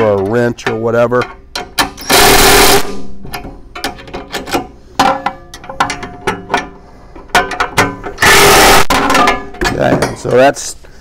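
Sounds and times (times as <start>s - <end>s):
impact wrench running: 2.0s - 3.0s
metallic clicks and rattles: 3.2s - 8.2s.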